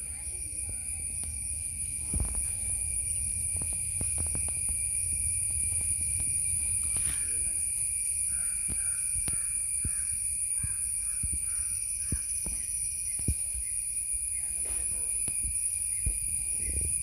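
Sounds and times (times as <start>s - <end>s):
low rumble: 0.0s - 11.4s
high-pitched insect drone: 0.0s - 17.0s.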